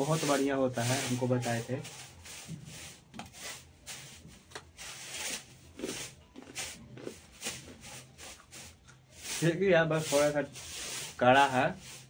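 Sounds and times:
person chewing crunchy food: 5.6s - 9.2s.

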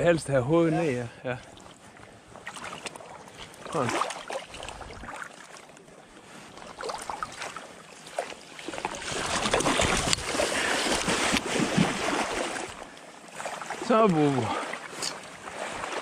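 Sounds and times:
faint water dabbling: 0.8s - 16.0s
net splashing through water: 2.4s - 5.6s, 6.5s - 16.0s.

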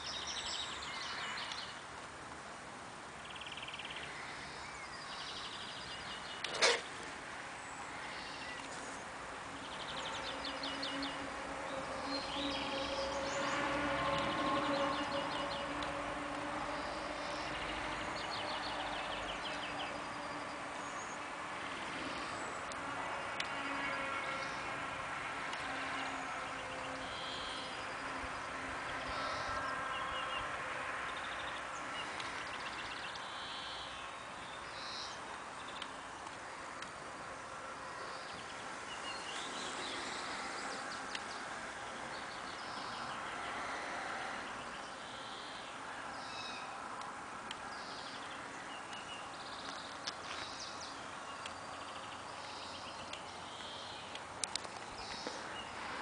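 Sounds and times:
songbirds chirping: 0.0s - 56.0s.

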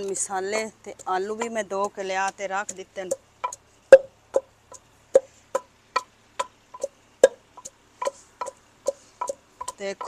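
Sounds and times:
wooden pestle pounding in mortar: 0.0s - 10.0s.

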